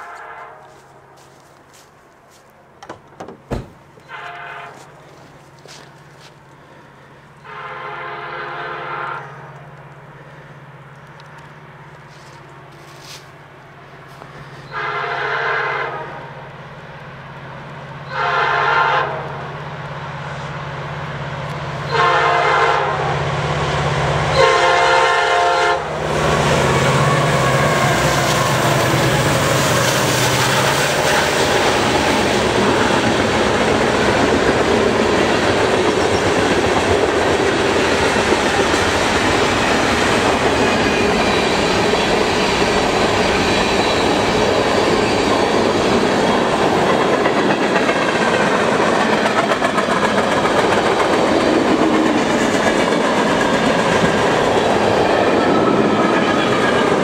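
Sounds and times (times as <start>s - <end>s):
locomotive air horn blasts: 0.0s - 1.4s, 4.0s - 5.1s, 7.4s - 9.6s, 14.6s - 16.4s, 18.0s - 19.4s, 21.9s - 23.3s, 24.3s - 29.1s
freight train rumbling past: 0.0s - 57.0s
wheels clattering on rail: 28.2s - 57.0s.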